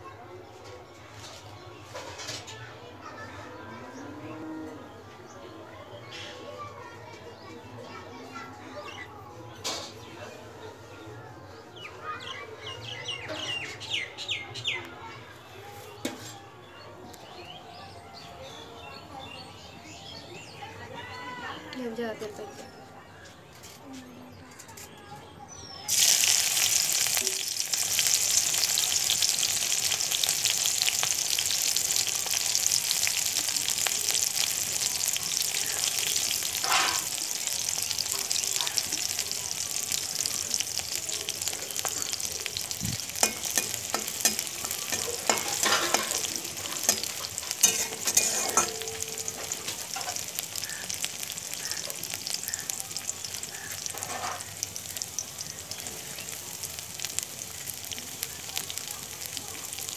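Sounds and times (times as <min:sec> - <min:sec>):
chillies sizzling in hot oil: 0:00.9 - 0:02.6, 0:06.0 - 0:10.7, 0:11.5 - 0:14.8, 0:15.8 - 0:17.5, 0:18.5 - 0:22.5, 0:25.5 - 0:59.9
clicks and scrapes on pan: 0:16.0 - 0:16.4.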